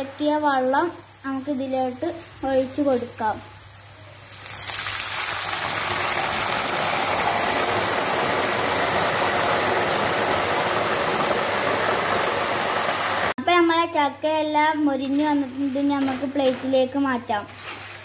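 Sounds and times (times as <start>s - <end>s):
water boiling in hot oil sizzling: 0.0s - 13.4s.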